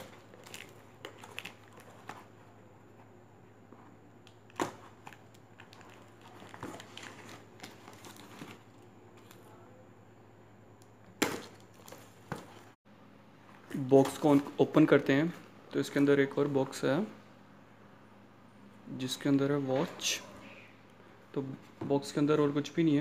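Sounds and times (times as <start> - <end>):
cardboard and tape rustling: 0.0 - 9.6.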